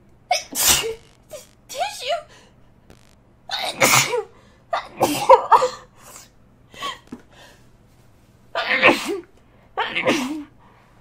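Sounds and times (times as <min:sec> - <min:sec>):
person sneezing: 0:00.3 - 0:01.5.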